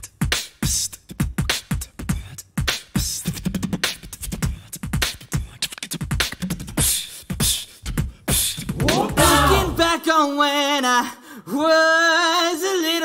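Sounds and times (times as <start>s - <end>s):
beatboxing drum sounds: 0.0s - 10.0s.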